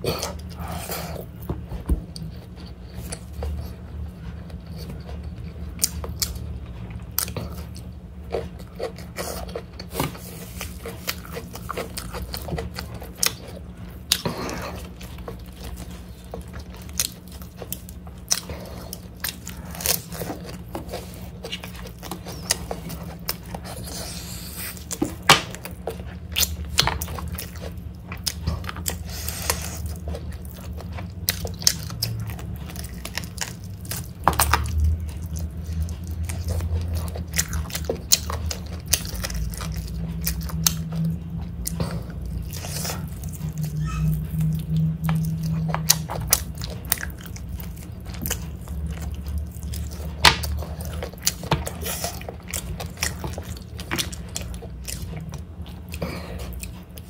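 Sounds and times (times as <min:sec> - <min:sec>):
chewing and biting food: 0:00.0 - 0:57.0
steady low hum: 0:00.0 - 0:57.0.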